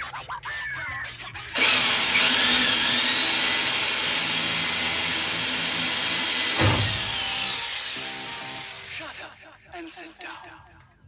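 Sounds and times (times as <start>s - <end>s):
drill drilling sheet metal: 1.6s - 9.0s
thump: 6.5s - 7.2s.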